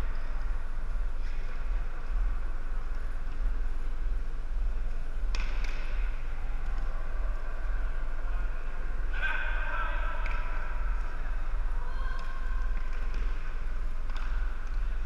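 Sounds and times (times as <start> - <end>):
steady low hum: 0.0 - 15.0
hockey sticks clacking on wooden floor: 10.2 - 10.5, 14.1 - 15.0.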